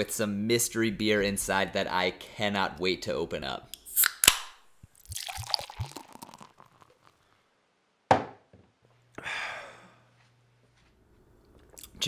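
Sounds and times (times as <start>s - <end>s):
beer pouring fizzing into glass: 4.9s - 7.2s
glass knocking on table: 8.1s - 8.6s.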